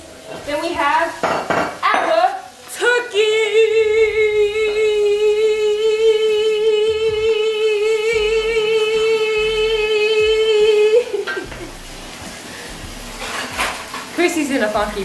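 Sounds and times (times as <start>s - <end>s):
woman singing a long note: 2.7s - 11.2s.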